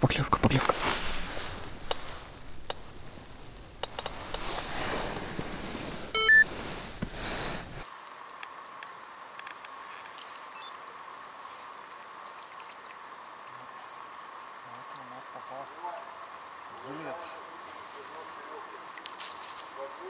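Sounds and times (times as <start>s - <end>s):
steady hiss: 0.0s - 20.0s
electronic beep: 6.1s - 6.5s, 10.5s - 10.7s.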